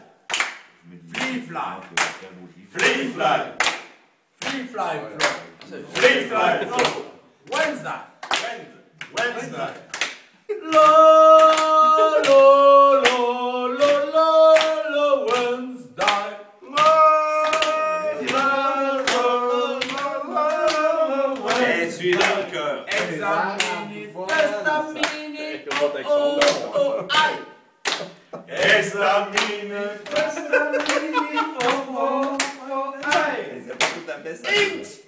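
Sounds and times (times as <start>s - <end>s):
hands clapping in time: 0.3s - 3.0s, 14.6s - 28.7s, 29.3s - 34.0s
men singing a cappella: 10.5s - 27.6s, 28.3s - 35.0s.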